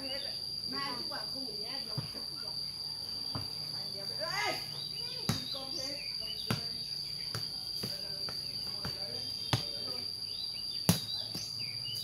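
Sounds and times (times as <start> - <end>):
high-pitched insect drone: 0.0 - 12.0
ball being kicked: 5.2 - 5.7, 6.4 - 10.0, 10.8 - 11.5.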